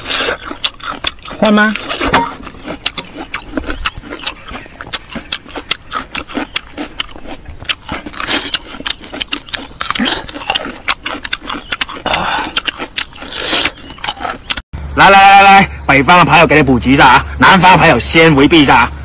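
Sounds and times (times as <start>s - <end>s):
crunchy chewing: 0.0s - 14.6s
wet mouth noises: 0.0s - 14.6s.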